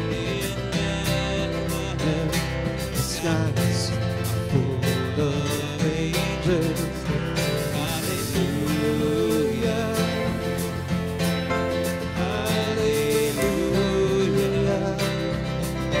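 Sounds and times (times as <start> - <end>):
bass: 0.0 - 16.0
person singing: 0.0 - 16.0
strummed acoustic guitar: 0.0 - 16.0
drum hits: 6.9 - 16.0.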